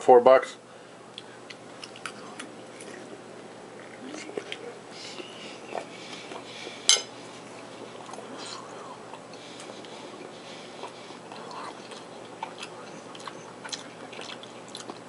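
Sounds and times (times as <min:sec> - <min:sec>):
quiet chewing: 0:01.1 - 0:15.0
metal spoon clinking on plate: 0:06.9 - 0:07.1.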